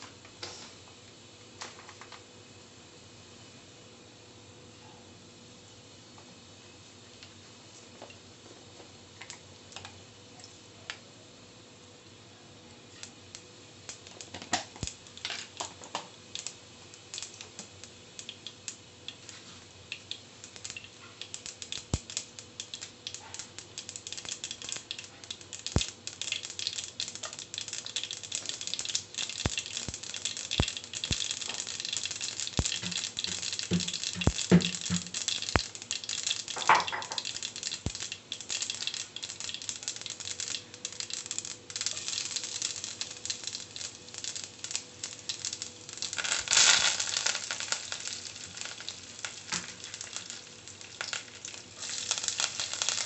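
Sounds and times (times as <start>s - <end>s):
seeds popping in hot oil: 9.1s - 11.1s, 12.7s - 53.0s.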